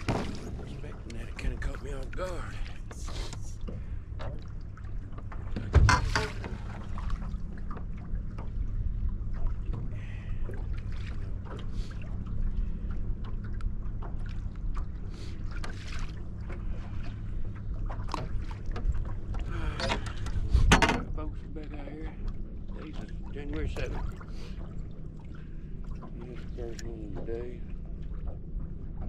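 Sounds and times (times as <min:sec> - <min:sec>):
low hum: 0:00.0 - 0:29.0
water slapping boat hull: 0:00.0 - 0:29.0
light knocks and rattles: 0:15.6 - 0:21.2.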